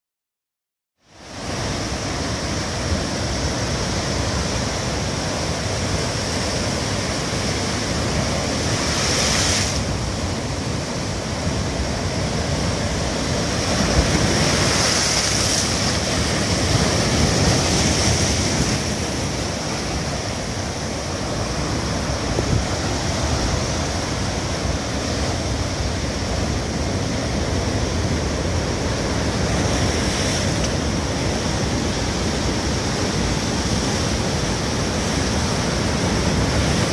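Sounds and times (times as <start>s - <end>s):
waves crashing on rocks: 1.2s - 36.9s
wind buffeting microphone: 8.2s - 30.1s.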